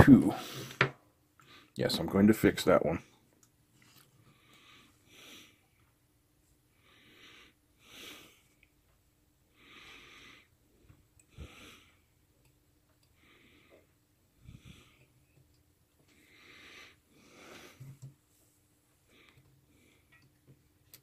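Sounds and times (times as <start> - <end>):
heavy breathing: 6.7 - 8.6, 9.5 - 12.1, 13.1 - 15.2, 16.0 - 18.0.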